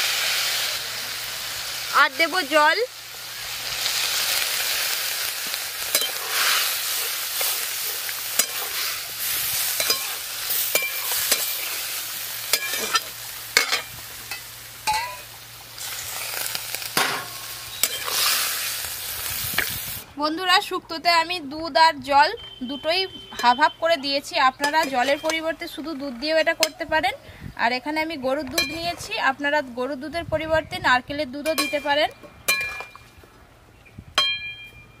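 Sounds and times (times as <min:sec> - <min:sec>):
liquid sizzling in hot wok: 0:00.0 - 0:20.1, 0:23.4 - 0:27.0
metal spatula scraping wok: 0:05.8 - 0:19.8, 0:23.2 - 0:25.7.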